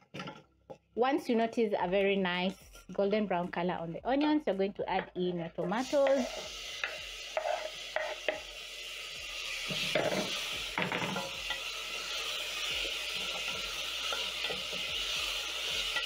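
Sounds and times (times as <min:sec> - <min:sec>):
vegetables sizzling in hot oil: 0:05.0 - 0:16.0
wooden spoon stirring and scraping: 0:05.8 - 0:06.6, 0:07.4 - 0:08.1.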